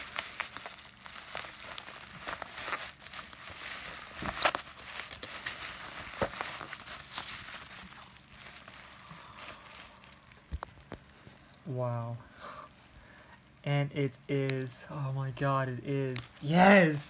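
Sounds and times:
bubble wrap crinkling: 0.0s - 13.6s.

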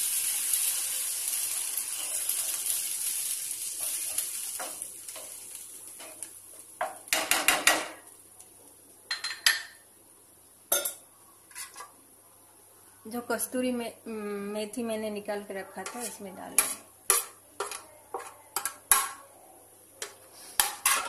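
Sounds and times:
curry sizzling in a pan: 0.0s - 9.0s, 15.8s - 19.2s.

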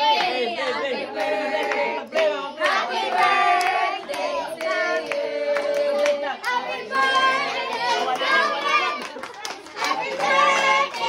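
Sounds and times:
group singing a celebration song: 0.0s - 11.0s
hand claps: 7.7s - 11.0s.

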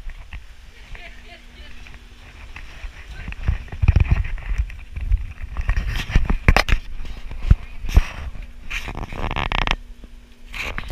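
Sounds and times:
camera handling noise: 3.7s - 8.1s.

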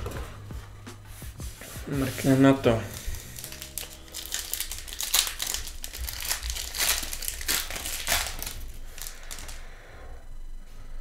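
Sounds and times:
foil wrapper crinkling: 2.9s - 9.6s.

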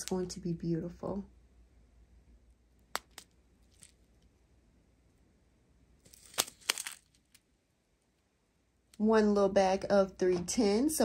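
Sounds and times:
plastic bags crinkling: 6.1s - 7.2s.

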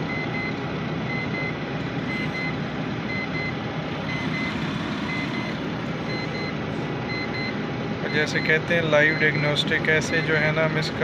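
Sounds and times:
short electronic beeps: 0.0s - 10.4s
truck diesel engine idling: 0.0s - 11.0s.

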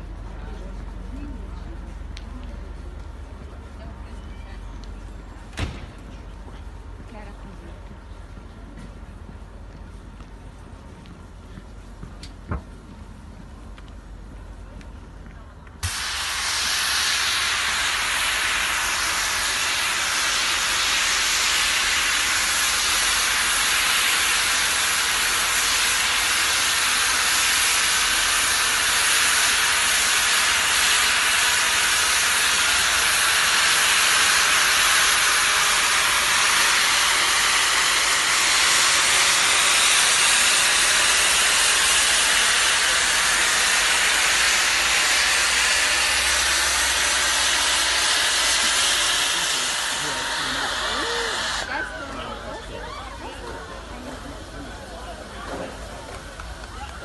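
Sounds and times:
steam locomotive venting steam: 15.7s - 57.0s.

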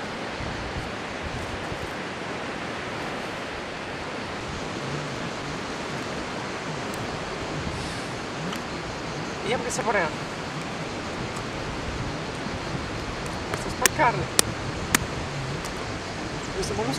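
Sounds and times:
rushing wind: 0.0s - 16.9s
wind buffeting microphone: 0.0s - 16.9s.

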